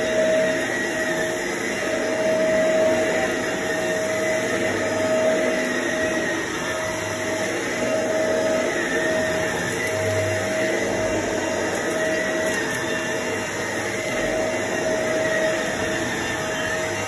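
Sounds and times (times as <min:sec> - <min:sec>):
upright vacuum cleaner on carpet: 0:00.0 - 0:17.0.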